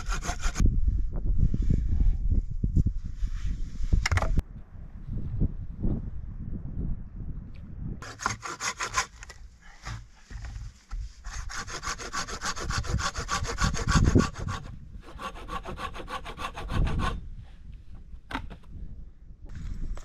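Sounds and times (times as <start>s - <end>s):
handsaw cutting wood: 0.0s - 0.6s, 8.0s - 9.2s, 11.3s - 17.2s.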